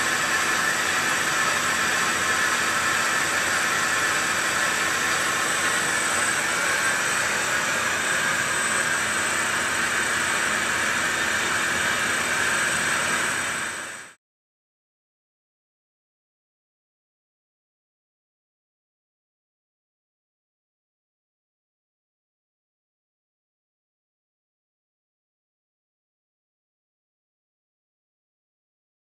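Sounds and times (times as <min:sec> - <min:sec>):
metal lathe running: 0:00.0 - 0:14.1.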